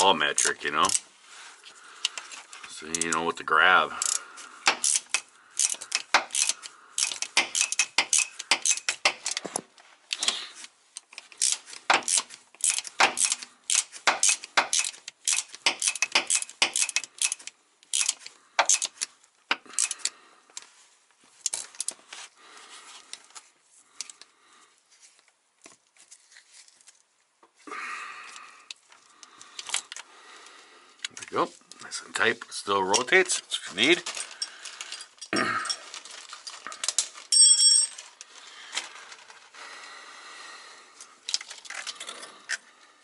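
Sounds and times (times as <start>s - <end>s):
socket ratchet clicking: 4.0s - 9.4s, 11.0s - 20.1s
wrench clinking on metal: 4.0s - 9.4s, 11.1s - 20.1s, 34.1s - 38.1s.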